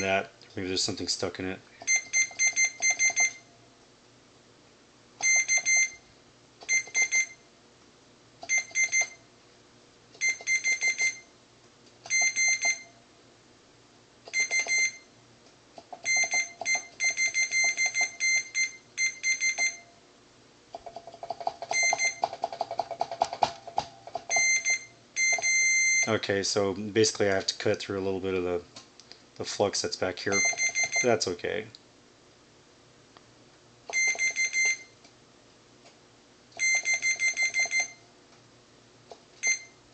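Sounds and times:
multimeter beeping: 0:01.8 - 0:03.5, 0:05.2 - 0:06.0, 0:06.7 - 0:07.4, 0:08.5 - 0:09.2, 0:10.2 - 0:11.3, 0:12.1 - 0:13.0, 0:14.3 - 0:15.1, 0:16.0 - 0:19.9, 0:21.6 - 0:22.6, 0:24.2 - 0:26.2, 0:30.3 - 0:31.3, 0:33.9 - 0:35.0, 0:36.6 - 0:38.0.

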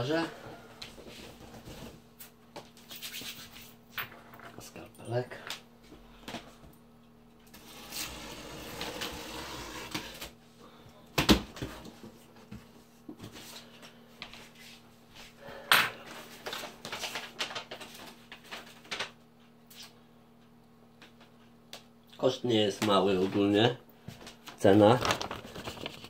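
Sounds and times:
cardboard and paper rustling: 0:16.3 - 0:19.1, 0:24.5 - 0:26.0.

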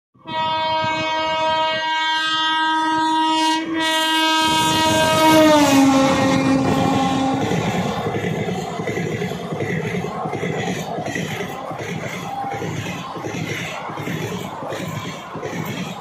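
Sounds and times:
locomotive horn blast: 0:00.2 - 0:08.0
train wheels clattering over rails: 0:04.4 - 0:16.0.

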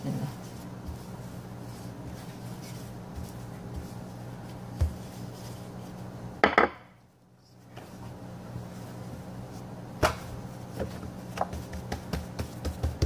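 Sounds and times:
steady low hum: 0:00.0 - 0:13.0
rolling pin knocking on counter: 0:06.4 - 0:06.8.

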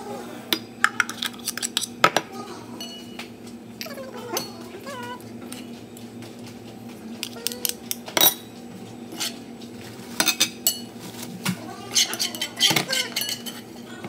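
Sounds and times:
spoon scraping metal pot: 0:09.1 - 0:09.4, 0:11.9 - 0:13.9.

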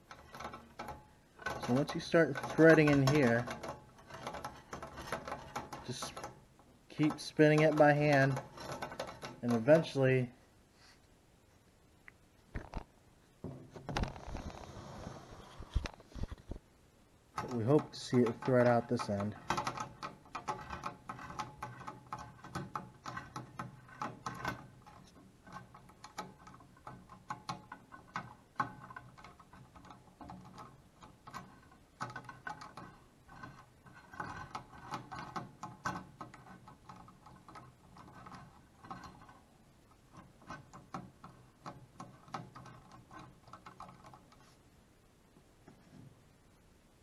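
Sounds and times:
lead screw clicking through nut: 0:00.0 - 0:06.4, 0:07.0 - 0:10.1, 0:17.4 - 0:39.4.

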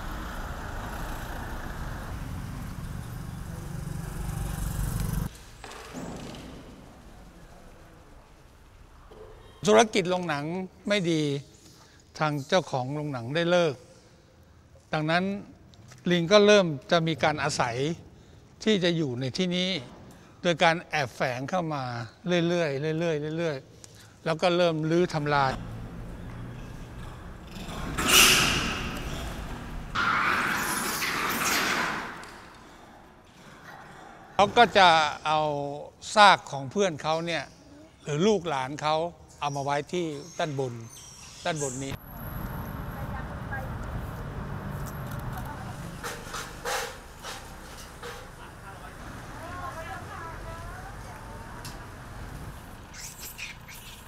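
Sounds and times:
motorbike passing close: 0:00.0 - 0:05.3, 0:42.0 - 0:52.9
street traffic: 0:00.0 - 0:05.5, 0:24.9 - 0:31.3, 0:41.8 - 0:54.0
harsh monkey cry: 0:52.9 - 0:54.0.

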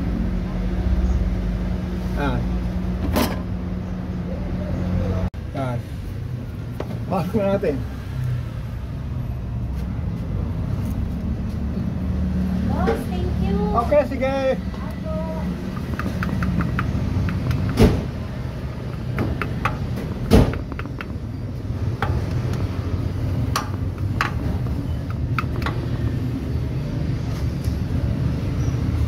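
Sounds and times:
metal knocks and taps: 0:15.6 - 0:21.3, 0:23.4 - 0:25.8.

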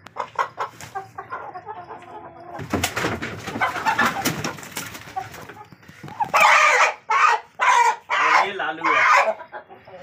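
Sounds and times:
chickens clucking: 0:00.0 - 0:10.0
chickens flapping and scuffling: 0:00.2 - 0:01.4, 0:02.0 - 0:07.9
chicken squawking loudly: 0:06.3 - 0:09.4.

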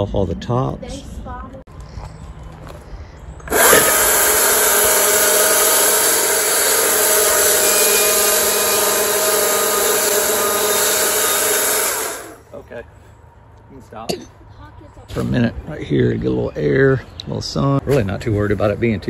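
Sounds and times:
chainsaw cutting wood: 0:03.4 - 0:12.4.

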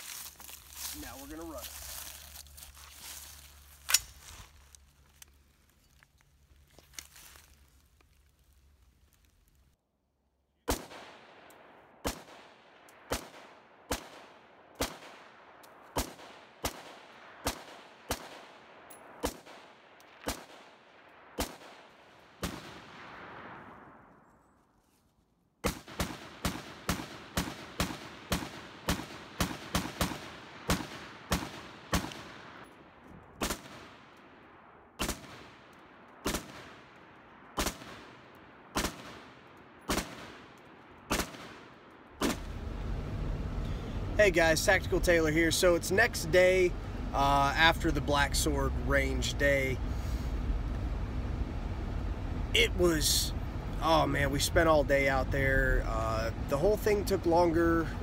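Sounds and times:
rifle shots with echo: 0:10.6 - 0:24.1, 0:25.6 - 0:42.5.

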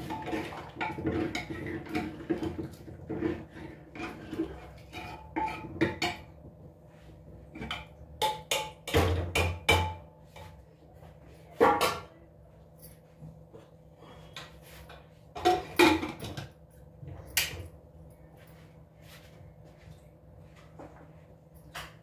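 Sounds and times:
metal utensils and dishes clattering: 0:00.0 - 0:06.4, 0:14.9 - 0:16.6.

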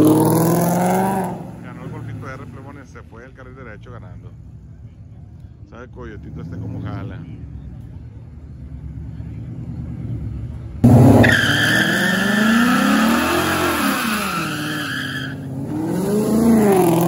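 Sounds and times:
car engine revving: 0:00.0 - 0:02.8, 0:10.8 - 0:17.0
tyres squealing: 0:11.1 - 0:15.5.

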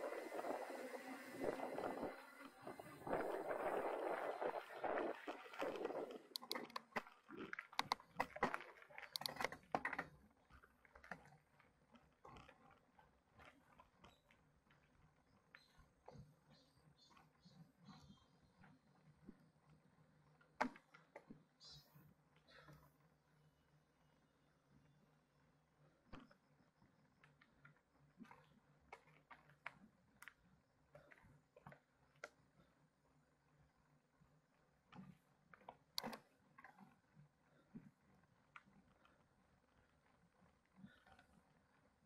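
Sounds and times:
mountain bike clattering on trail: 0:00.0 - 0:17.2.

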